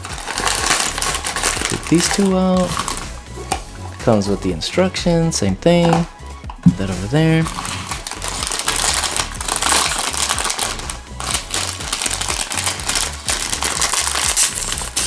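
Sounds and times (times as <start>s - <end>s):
foil packet crinkling: 0.0s - 3.0s, 7.4s - 15.0s.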